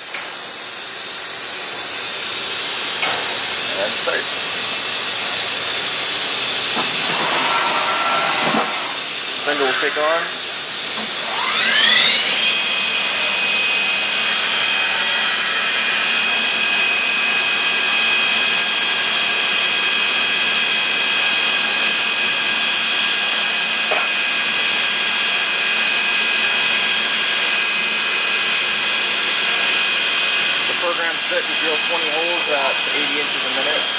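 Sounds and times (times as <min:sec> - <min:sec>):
mill spindle whining: 0:01.8 - 0:33.9.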